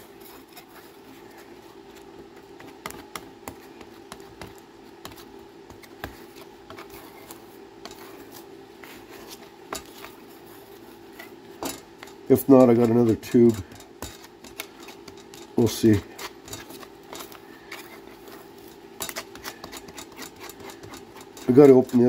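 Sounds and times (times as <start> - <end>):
steady background hum: 0.0 - 22.0
putty knife scraping on metal: 19.0 - 22.0.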